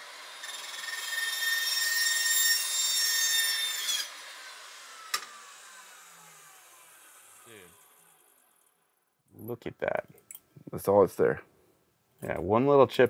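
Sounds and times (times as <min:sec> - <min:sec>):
cold saw cutting metal tubing: 0:00.0 - 0:08.7
saw blade spinning down: 0:00.0 - 0:08.8.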